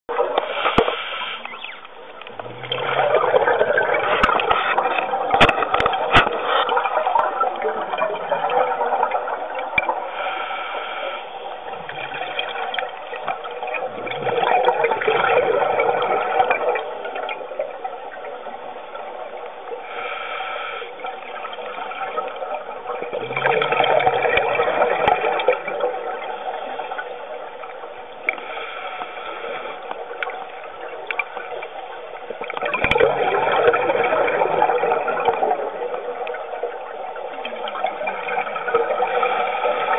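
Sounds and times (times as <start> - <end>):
exhaled bubbles gurgling underwater: 0.1 - 39.9
regulator hiss: 0.4 - 1.8, 10.0 - 12.2, 19.8 - 22.0.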